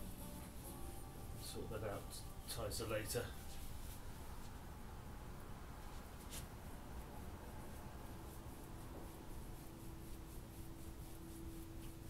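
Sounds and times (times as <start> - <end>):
paintbrush brushing on wall: 5.8 - 12.0.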